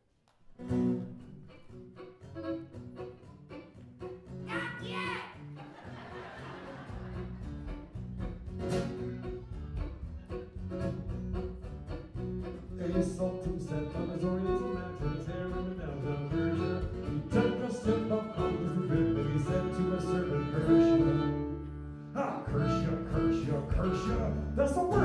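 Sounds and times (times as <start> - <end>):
strummed acoustic guitar: 0.6 - 25.0
bass: 2.3 - 25.0
fiddle playing folk tune: 9.2 - 25.0.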